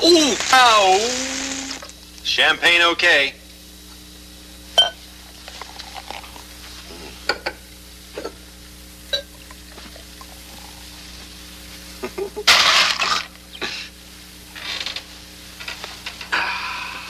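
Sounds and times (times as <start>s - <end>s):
champagne pouring and fizzing: 0.0s - 2.0s, 5.3s - 6.6s.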